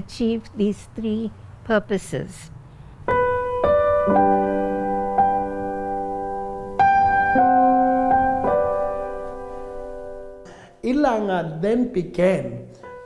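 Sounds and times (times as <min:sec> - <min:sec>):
slow piano music: 0:03.0 - 0:10.7, 0:12.7 - 0:13.0.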